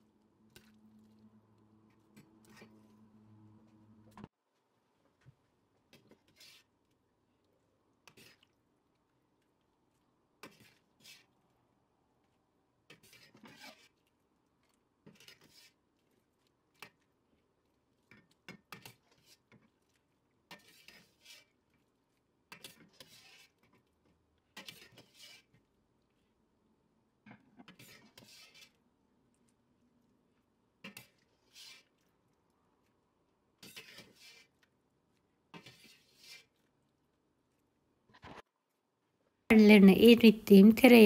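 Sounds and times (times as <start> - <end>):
utensil scraping metal pan: 33.6 - 34.5.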